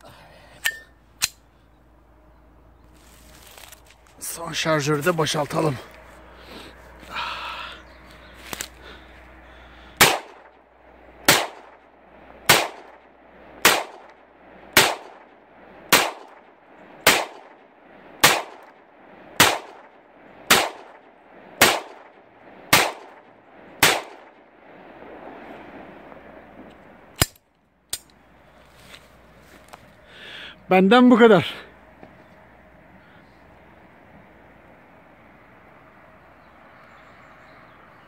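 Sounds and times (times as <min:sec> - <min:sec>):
pistol shots: 0:10.0 - 0:10.6, 0:11.2 - 0:11.8, 0:12.4 - 0:18.8, 0:19.4 - 0:24.4.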